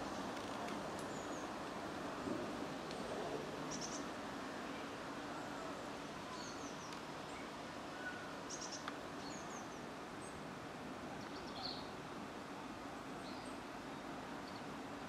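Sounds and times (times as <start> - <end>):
small birds chirping: 3.7 - 4.1, 6.2 - 10.4, 11.2 - 12.0.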